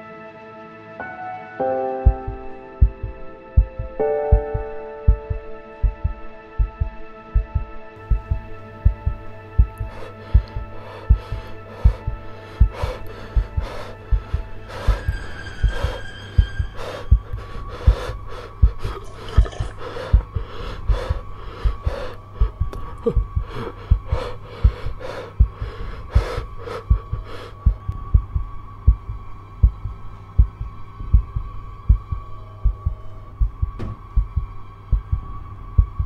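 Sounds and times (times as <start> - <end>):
heartbeat thumping: 2.0 - 36.0
steady low hum: 2.0 - 36.0
thin high ringing tone: 15.0 - 17.4.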